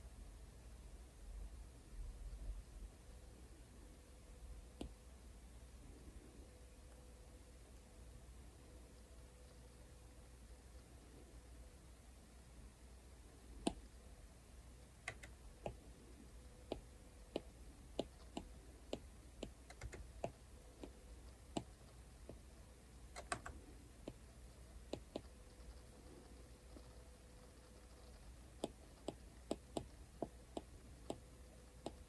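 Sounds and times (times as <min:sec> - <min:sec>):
stylus tip tapping on glass screen: 0:28.6 - 0:31.2.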